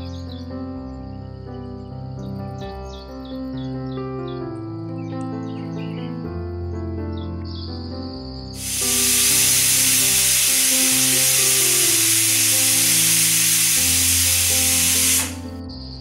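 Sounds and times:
pressure cooker whistle hissing: 8.6s - 15.5s.

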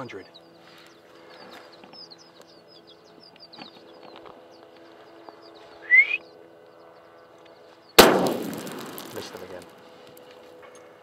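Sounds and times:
loud rising whistle: 5.8s - 6.3s.

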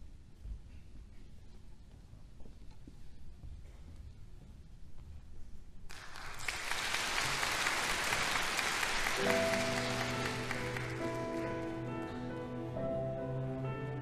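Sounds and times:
audience applauding: 5.9s - 12.0s
orchestra playing sustained notes: 9.0s - 14.0s.

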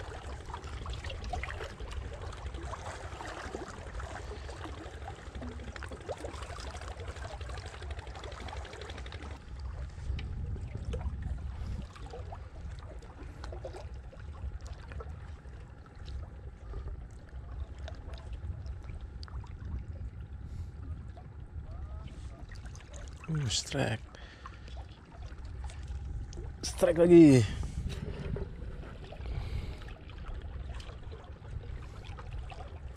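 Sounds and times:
water splashing and trickling: 0.0s - 32.9s
low rumble: 9.4s - 22.8s, 25.0s - 32.9s.

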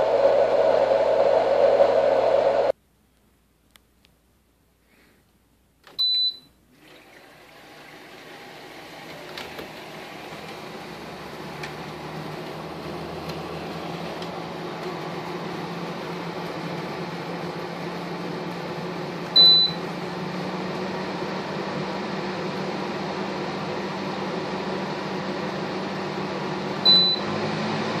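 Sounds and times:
air conditioner fan humming: 0.0s - 2.8s, 5.4s - 28.0s
air conditioner beeping: 5.9s - 6.6s, 12.2s - 21.4s, 26.8s - 27.4s.

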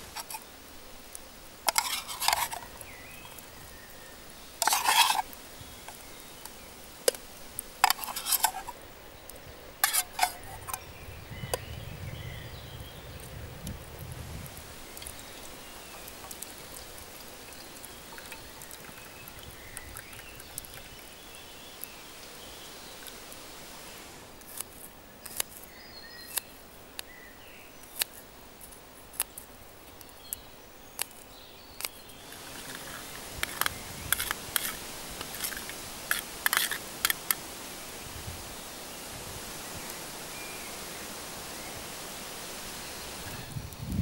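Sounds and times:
utensil scraping metal tin: 0.0s - 0.4s, 1.7s - 2.8s, 4.6s - 5.3s, 7.8s - 8.8s, 9.8s - 10.8s, 32.4s - 37.4s.

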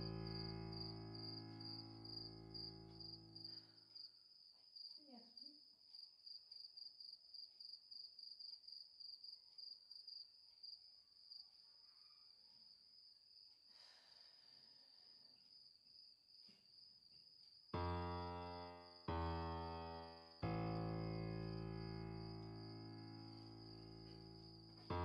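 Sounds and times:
sustained musical chord: 0.0s - 3.4s, 17.8s - 25.0s
cricket chirping: 0.0s - 25.0s.

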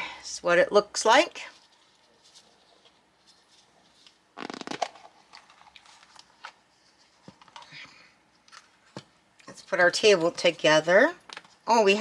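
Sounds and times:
plastic capsule scraping rustle: 3.9s - 6.3s.

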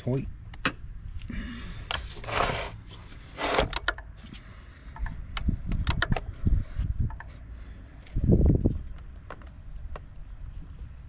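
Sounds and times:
short scrapes: 2.0s - 4.4s
metal and plastic clicks: 3.6s - 4.1s, 4.9s - 6.3s.

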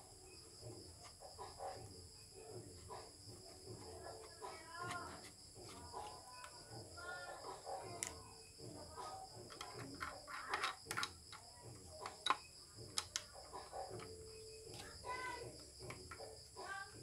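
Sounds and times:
plastic parts clicking: 7.8s - 8.3s, 8.9s - 15.0s.

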